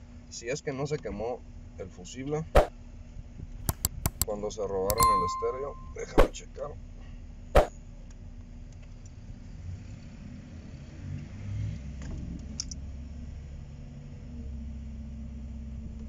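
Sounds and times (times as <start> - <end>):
sharp clicks: 3.7 - 4.3.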